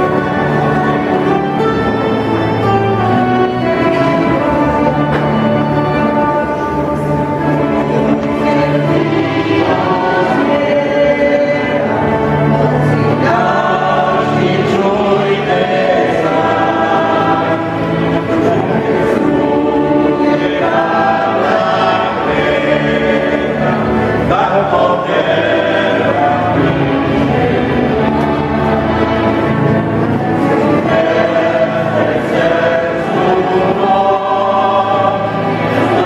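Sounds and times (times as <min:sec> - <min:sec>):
choir singing church music: 0:00.0 - 0:36.0.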